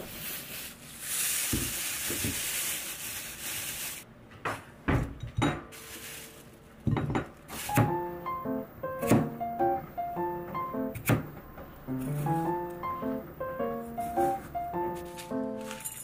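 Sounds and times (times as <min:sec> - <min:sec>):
dishes and cookware clattering: 0:04.9 - 0:05.8, 0:06.8 - 0:08.0
soft piano music: 0:07.6 - 0:16.0.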